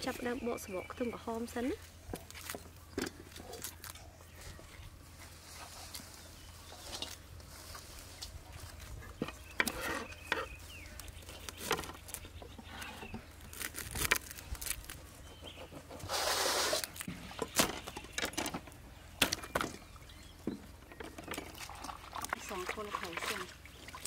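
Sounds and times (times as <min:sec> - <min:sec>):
onion skins crackling: 0:09.5 - 0:15.3, 0:16.1 - 0:17.8.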